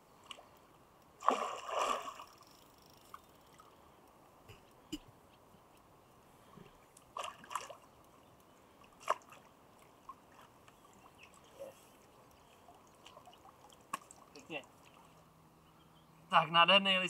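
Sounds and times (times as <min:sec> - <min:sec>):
fish splashing in water: 0:01.2 - 0:02.5.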